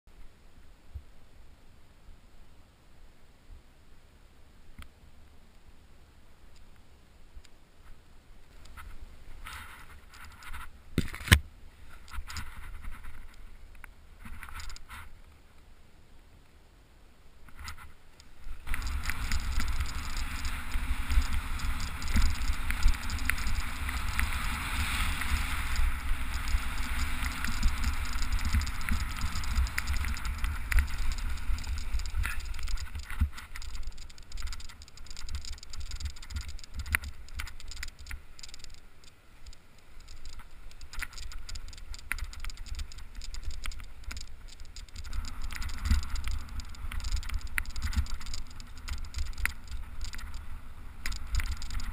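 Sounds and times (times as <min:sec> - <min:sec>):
wheels rolling over grass: 0:17.5 - 0:51.9.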